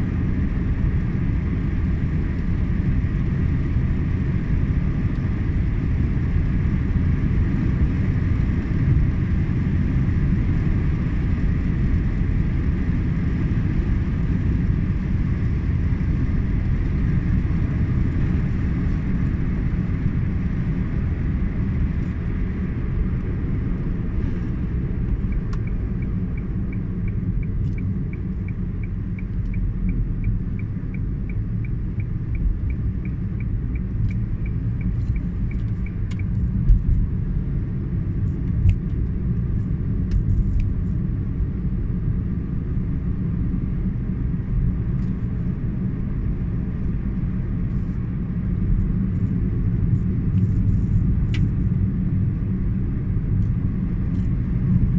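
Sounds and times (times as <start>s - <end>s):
car cabin road rumble: 0.0s - 54.9s
turn signal ticking: 24.6s - 37.4s.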